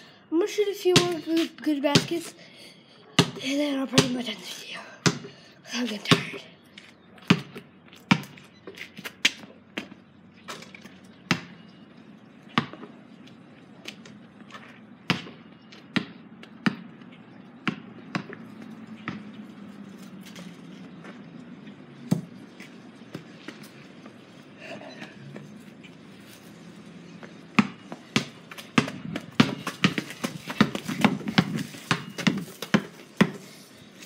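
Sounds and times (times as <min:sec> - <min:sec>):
basketball bouncing on concrete: 0:00.9 - 0:02.3, 0:03.2 - 0:04.3, 0:05.0 - 0:06.4, 0:07.2 - 0:10.0, 0:11.2 - 0:11.8, 0:12.5 - 0:18.4, 0:19.0 - 0:19.3, 0:22.0 - 0:23.6, 0:27.2 - 0:33.4.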